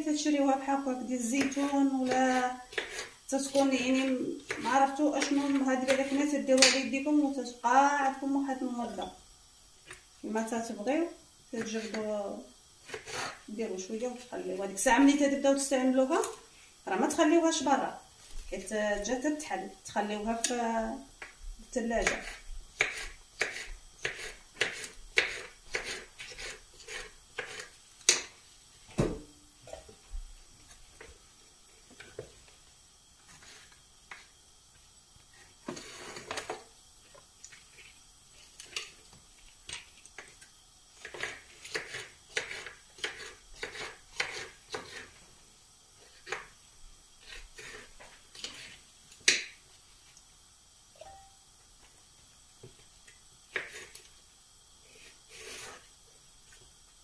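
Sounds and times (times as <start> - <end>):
knife chopping on wooden board: 2.1 - 3.1, 22.0 - 28.2.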